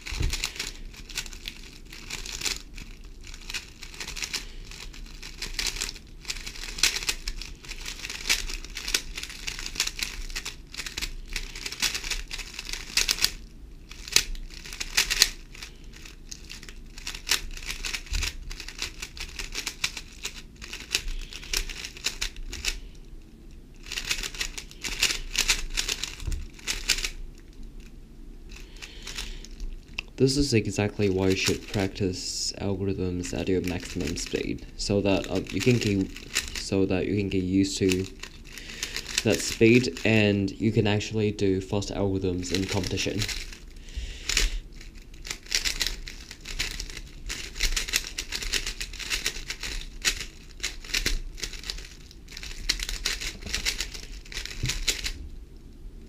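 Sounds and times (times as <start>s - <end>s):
puzzle cube clicking: 3.4s - 22.8s, 23.8s - 27.2s, 35.1s - 36.7s, 37.9s - 40.1s, 44.3s - 55.2s.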